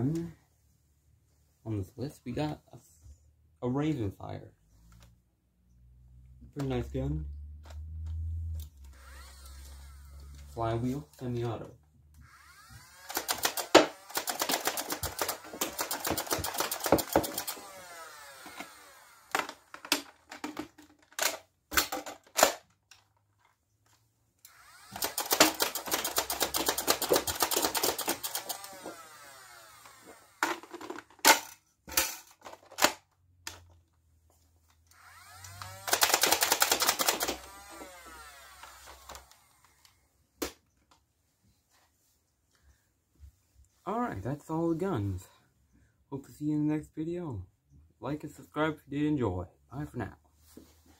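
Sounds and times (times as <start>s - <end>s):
blaster motors whining: 8.9s - 10.5s, 12.2s - 13.2s, 24.5s - 25.1s.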